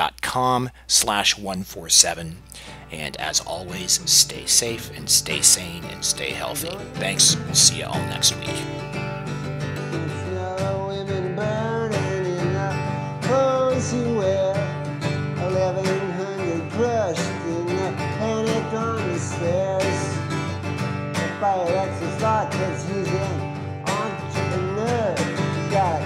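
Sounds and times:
country music with acoustic guitar: 0:01.9 - 0:26.0
sliding melody line: 0:03.5 - 0:09.0.

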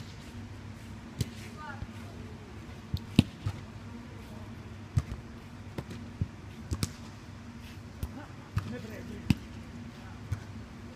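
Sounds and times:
steady low hum: 0:00.0 - 0:10.9
ball being struck: 0:02.9 - 0:03.6, 0:05.8 - 0:07.1.

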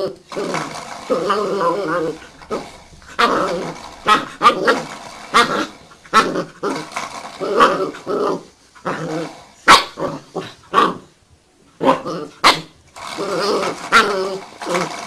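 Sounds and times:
puppy growling: 0:00.0 - 0:11.2, 0:11.8 - 0:15.0.

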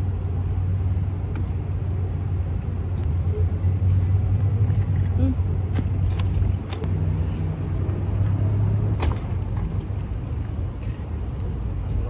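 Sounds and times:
low engine rumble: 0:00.0 - 0:12.0.

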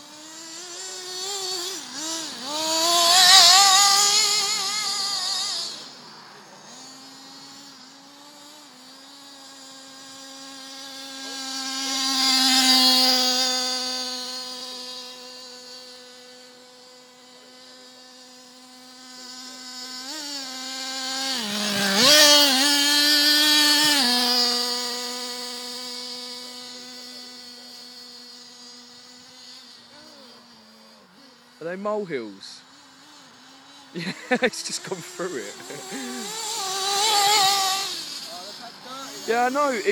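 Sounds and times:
rc car engine buzzing: 0:00.0 - 0:39.9.

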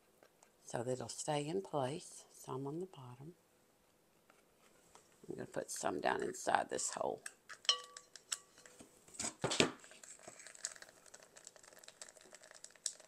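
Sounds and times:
small clicks and rustles: 0:09.8 - 0:13.0.

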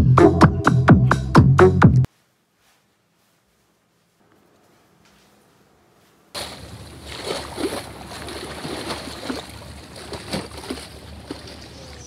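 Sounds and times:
sea water splashing: 0:06.4 - 0:12.0.

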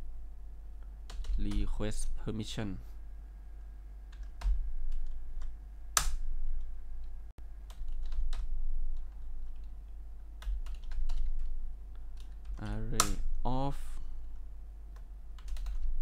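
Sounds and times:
low hum: 0:02.8 - 0:12.4
keyboard typing: 0:04.1 - 0:13.3, 0:14.2 - 0:16.0.

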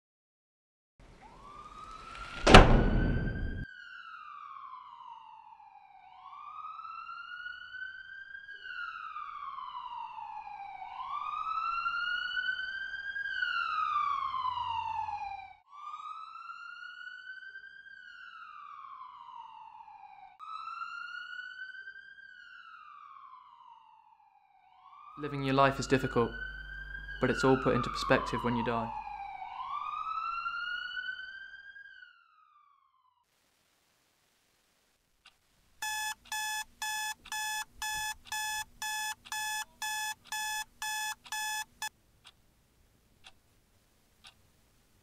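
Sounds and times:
emergency siren wailing: 0:01.2 - 0:33.2.

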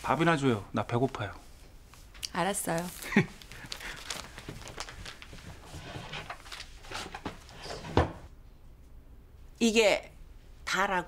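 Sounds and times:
banknotes rustling: 0:02.0 - 0:07.5.

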